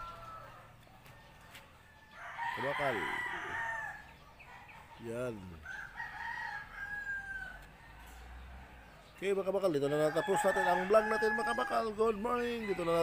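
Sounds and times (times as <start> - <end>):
rooster crowing: 0.0 - 0.7, 1.9 - 4.1, 5.6 - 8.8, 9.8 - 13.0.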